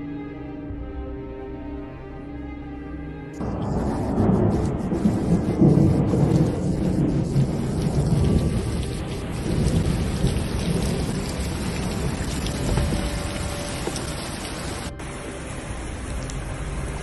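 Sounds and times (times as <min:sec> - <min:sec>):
heavy rain pouring: 0:03.4 - 0:17.0.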